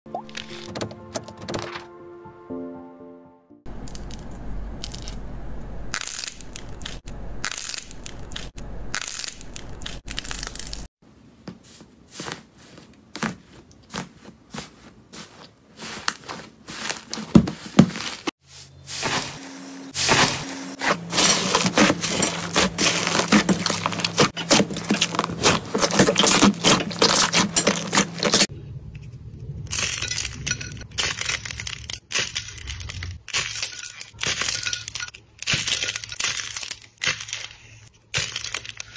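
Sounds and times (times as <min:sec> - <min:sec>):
dry clay crumbling: 0:21.0 - 0:28.5, 0:29.7 - 0:38.9.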